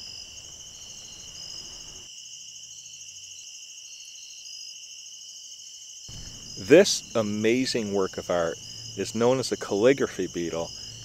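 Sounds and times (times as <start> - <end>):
crickets trilling: 0.0 - 11.0
insects chirping: 0.0 - 11.0.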